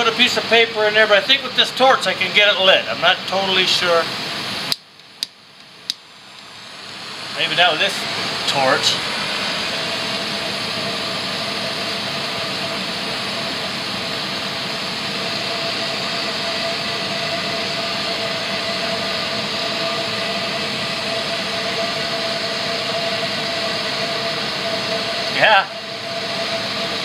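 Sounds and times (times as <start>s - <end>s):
propane torch hissing: 0.1s - 4.8s, 5.8s - 27.0s.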